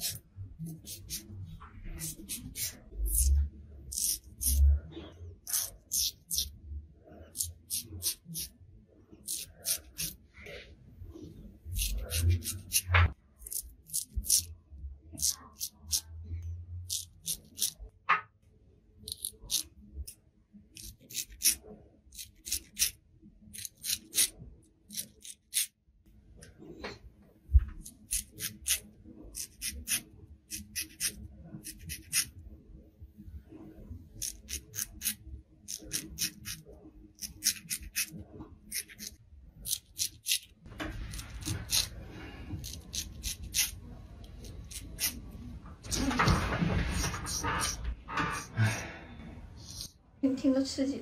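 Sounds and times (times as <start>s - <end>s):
razor scraping stubble: 0.0s - 4.6s, 9.2s - 10.2s, 11.7s - 14.5s.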